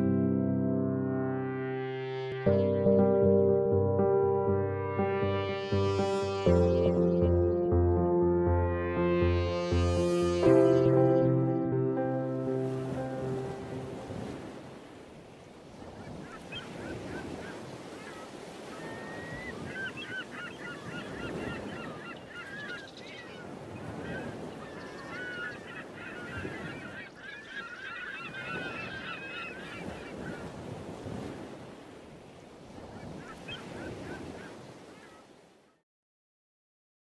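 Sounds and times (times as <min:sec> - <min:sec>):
sea: 0:00.0 - 0:35.8
wind: 0:12.3 - 0:35.8
flock of birds calling: 0:16.0 - 0:30.7.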